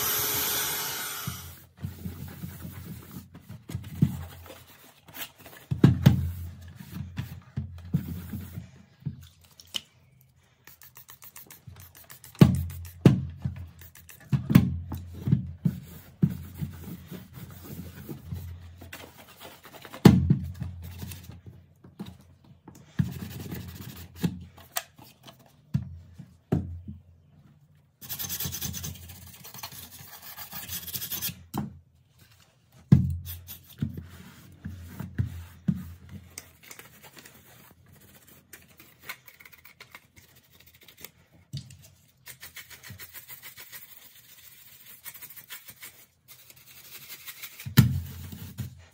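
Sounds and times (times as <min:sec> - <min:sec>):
toothbrush scrubbing: 0:10.7 - 0:13.0, 0:42.2 - 0:47.6.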